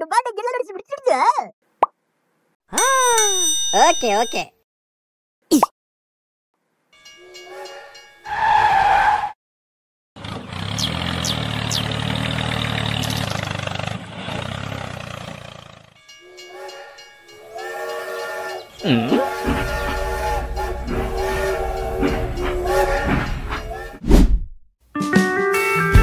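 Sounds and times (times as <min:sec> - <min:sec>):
toy train whistle: 0:16.2 - 0:24.0.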